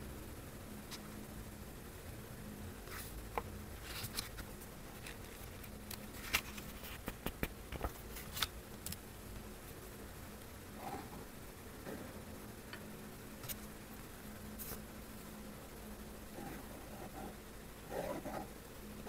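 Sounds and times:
hands handling a book: 0:03.8 - 0:09.0.

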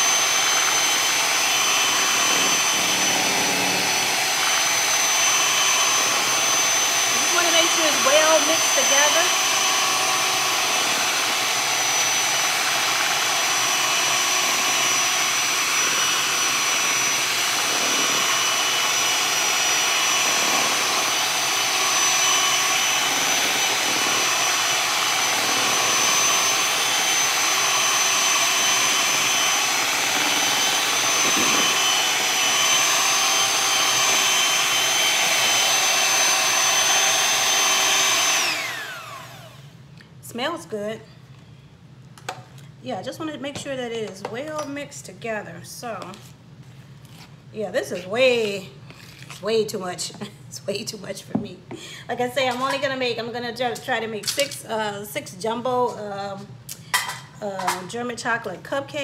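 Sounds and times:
electric hand mixer whining: 0:00.0 - 0:39.8.

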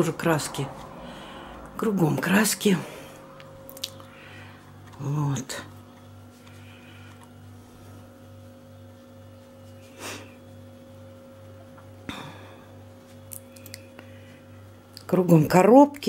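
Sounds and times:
household appliance humming: 0:00.0 - 0:16.0
breath: 0:00.9 - 0:01.7, 0:04.1 - 0:04.6.

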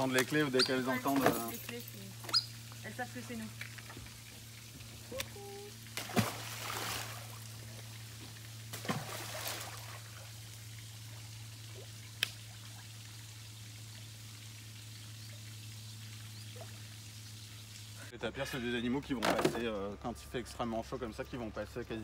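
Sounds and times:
steady low hum: 0:00.0 - 0:22.0
ice splashing into water: 0:05.9 - 0:07.5, 0:08.7 - 0:10.4.

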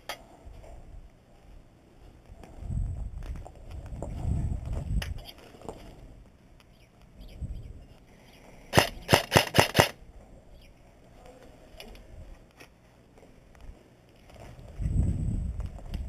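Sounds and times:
airsoft gun firing: 0:08.7 - 0:10.0.

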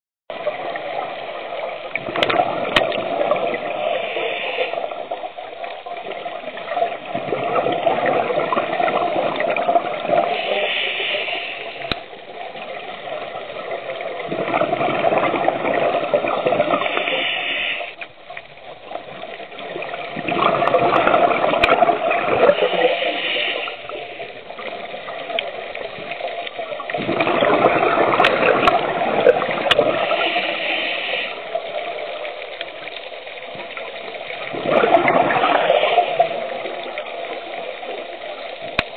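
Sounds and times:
scuba regulator bubbling and hiss: 0:00.3 - 0:38.9.

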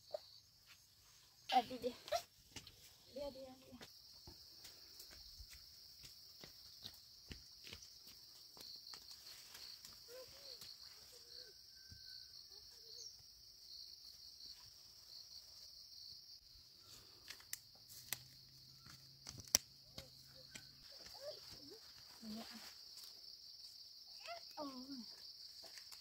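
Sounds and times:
insects droning: 0:00.0 - 0:26.0
footsteps on dirt path: 0:01.8 - 0:10.9, 0:17.7 - 0:23.0
twig snapping underfoot: 0:17.2 - 0:19.8.

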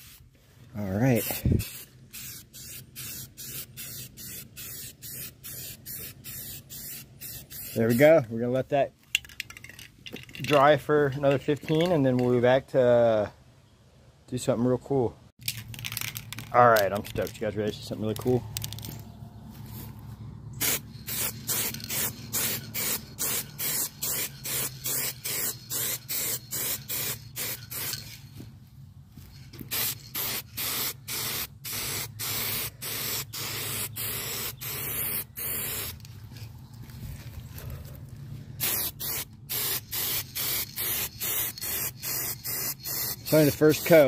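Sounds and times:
spray can spraying: 0:00.0 - 0:00.2, 0:01.2 - 0:08.0, 0:20.6 - 0:28.1, 0:29.4 - 0:36.1, 0:38.6 - 0:44.0.

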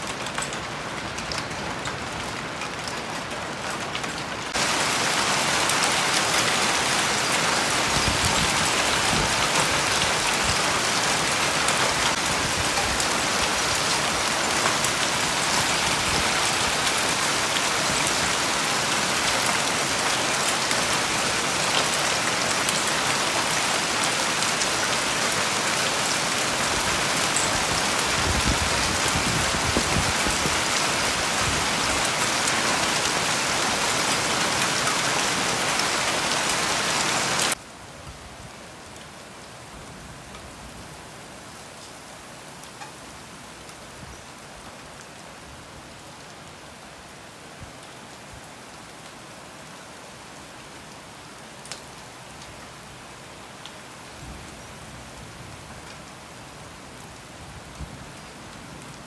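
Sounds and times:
hail falling on a lawn: 0:00.0 - 0:37.6.

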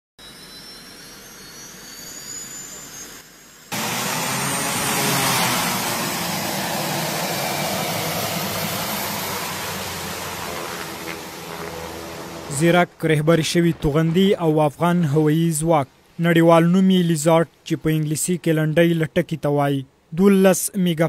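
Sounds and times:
high turbine whine: 0:00.2 - 0:15.3
steady low hum: 0:02.6 - 0:16.2
turboprop engine running: 0:03.7 - 0:13.0.

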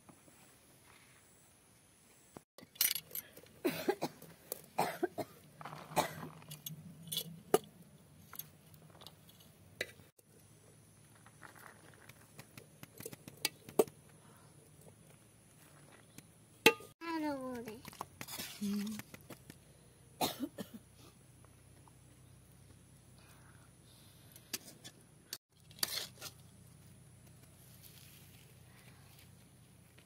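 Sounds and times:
metal spoon tapping steel pot: 0:16.7 - 0:16.9.

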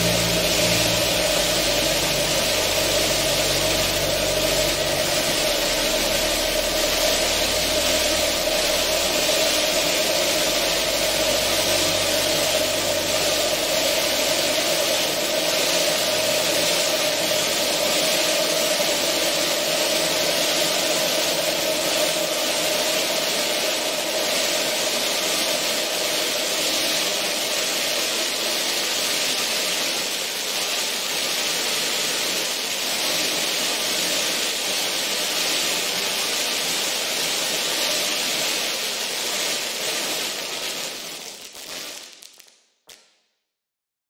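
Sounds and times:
dark ambient drone music: 0:00.0 - 0:26.0.

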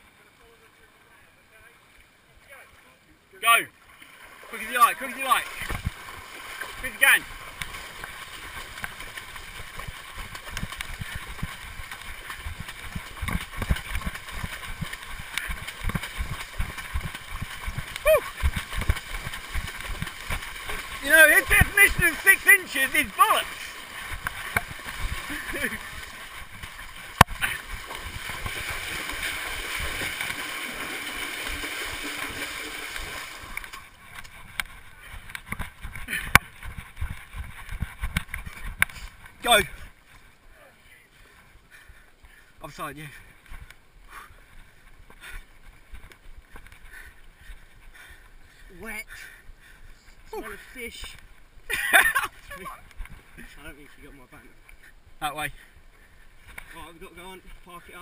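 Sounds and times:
footsteps splashing through water: 0:03.9 - 0:40.2.

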